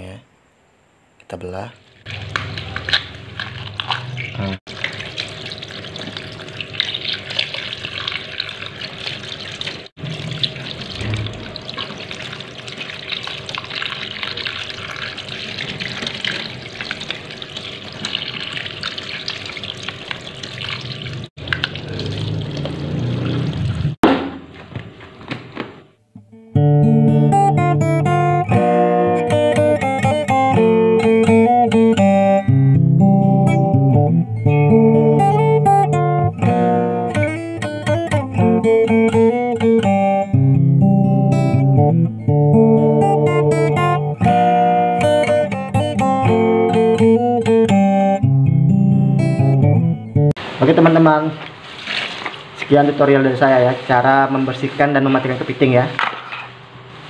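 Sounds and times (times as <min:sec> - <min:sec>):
tap water splashing into sink: 0:02.0 - 0:24.3
loud guitar music: 0:26.2 - 0:50.3.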